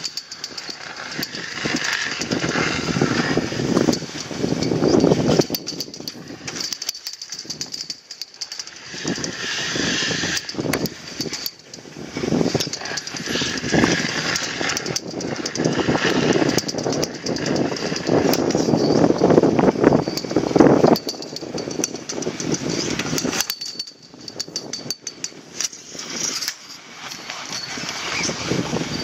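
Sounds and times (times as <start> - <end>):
snowboard scraping over snow: 1.2 - 5.3, 25.8 - 29.0.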